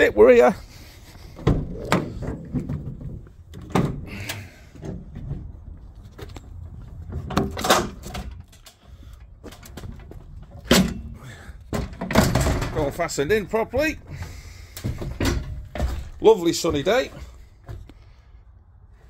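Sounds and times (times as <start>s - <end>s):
metal ramp clunking and clattering: 1.2s - 5.5s, 7.0s - 8.9s, 9.5s - 17.4s
van door unlatching and opening: 1.4s - 5.3s, 7.1s - 8.6s.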